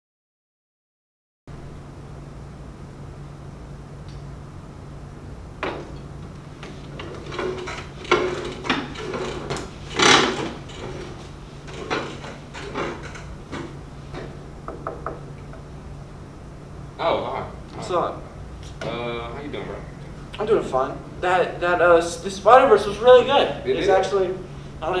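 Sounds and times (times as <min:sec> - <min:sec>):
steady low hum: 0:01.5 - 0:25.0
knocks and scrapes at a desk: 0:05.6 - 0:06.0, 0:06.6 - 0:15.6.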